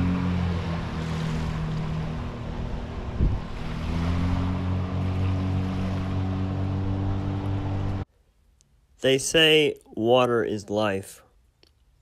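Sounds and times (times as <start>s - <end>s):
boat motor running: 0.0s - 8.0s
wind noise on microphone: 0.8s - 4.6s.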